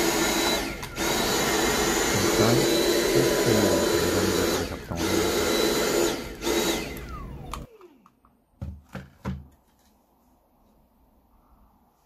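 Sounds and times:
vacuum motor whining: 0.0 - 8.2.

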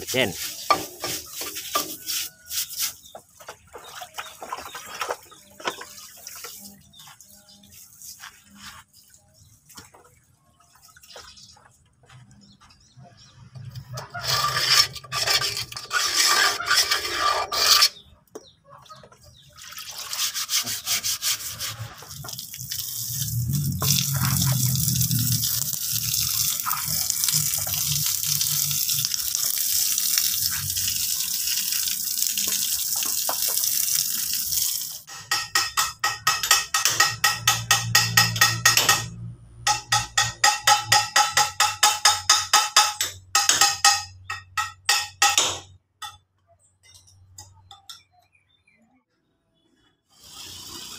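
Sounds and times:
ringing metal strikes: 35.1 - 48.2.

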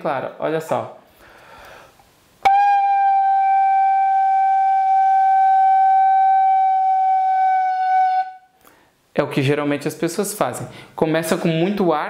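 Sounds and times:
fife playing a long note: 2.4 - 8.5.

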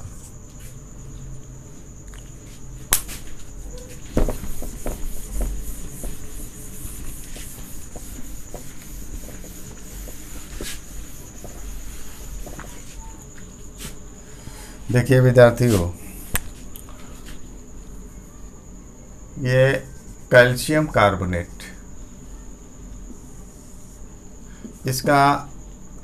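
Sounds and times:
cloth rubbing on whiteboard: 3.9 - 13.1
knocks: 4.1 - 6.2.

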